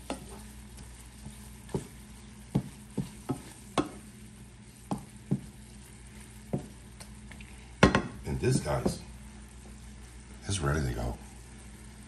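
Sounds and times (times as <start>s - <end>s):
spatula scraping a pan: 0.0s - 6.8s
sauce sizzling: 0.0s - 12.0s.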